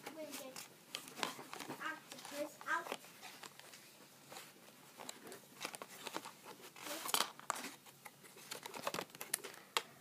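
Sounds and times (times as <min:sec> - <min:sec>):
cardboard and plastic packaging crinkling: 0:00.2 - 0:09.8.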